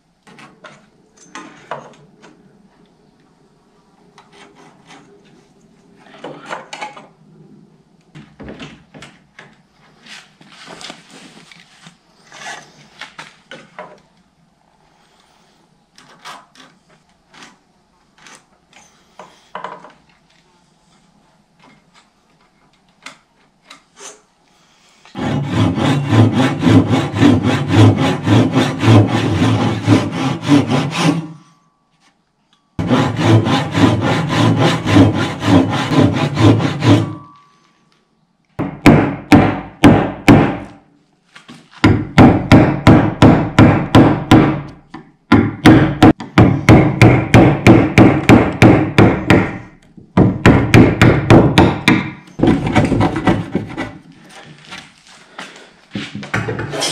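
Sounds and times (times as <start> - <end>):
hand tool strokes on wood: 25.1 - 31.6, 32.8 - 37.7.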